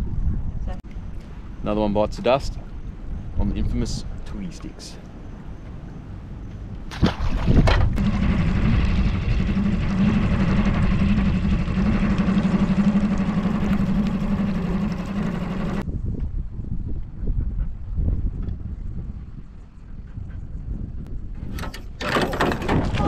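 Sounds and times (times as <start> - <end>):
outboard motor running: 7.0 - 15.8.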